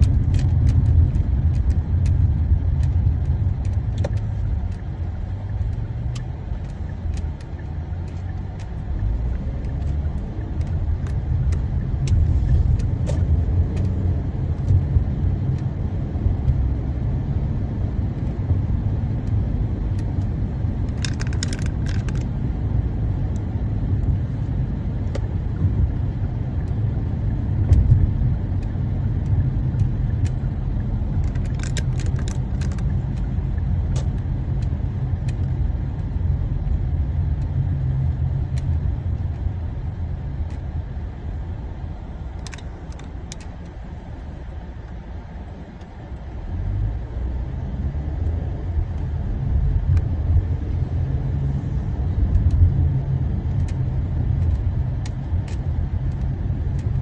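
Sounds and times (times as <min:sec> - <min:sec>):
light clicks or rattles: 0:00.0 - 0:15.8, 0:19.2 - 0:22.5, 0:27.6 - 0:36.2, 0:42.2 - 0:45.1, 0:51.4 - 0:57.0
car interior road rumble: 0:00.0 - 0:57.0.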